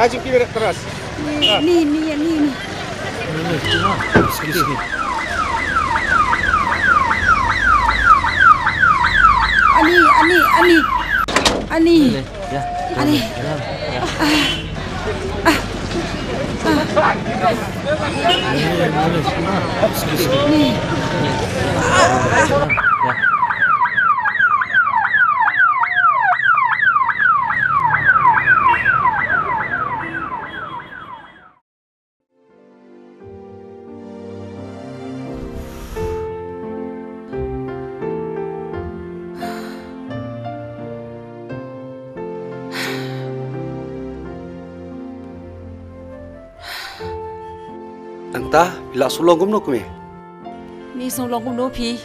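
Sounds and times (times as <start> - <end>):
ambulance siren falling sweeps: 3.6 - 11.4, 20.2 - 31.6.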